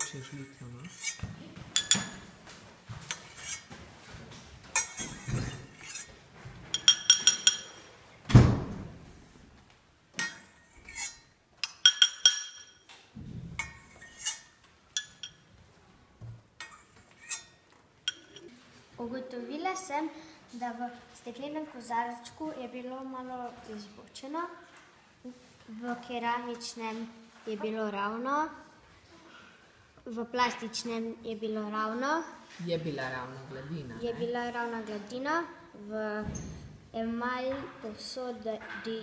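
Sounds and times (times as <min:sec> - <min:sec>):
teaspoon clinking against pot and glass: 0:01.8 - 0:02.2, 0:06.8 - 0:07.8, 0:10.2 - 0:12.8, 0:15.0 - 0:15.4.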